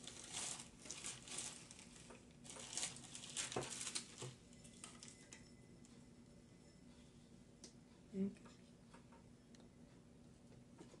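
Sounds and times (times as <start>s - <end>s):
wrapping rustling and crinkling: 0.0s - 5.4s.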